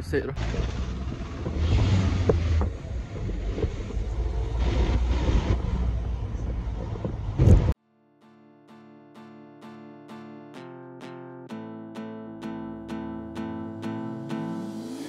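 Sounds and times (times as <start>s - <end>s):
engine and tyres rumbling: 0.0s - 7.8s
road and wind noise: 0.0s - 7.8s.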